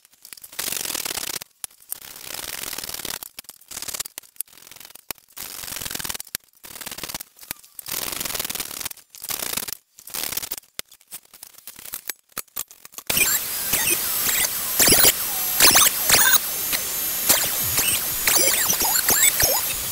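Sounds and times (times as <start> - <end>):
thickness planer whining: 13.1 - 19.9.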